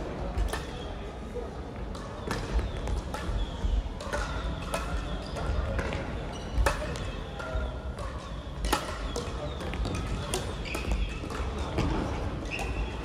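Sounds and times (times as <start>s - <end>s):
shoes squeaking on court floor: 5.2s - 7.7s, 9.0s - 12.9s.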